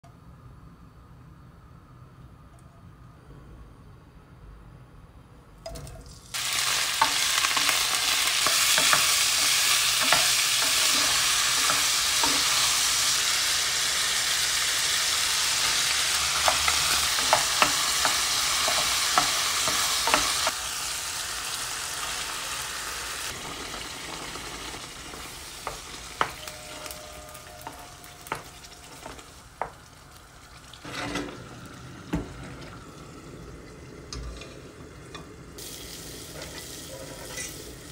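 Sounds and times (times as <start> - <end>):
sausage sizzling in oil: 6.3 - 33.6, 34.2 - 37.9.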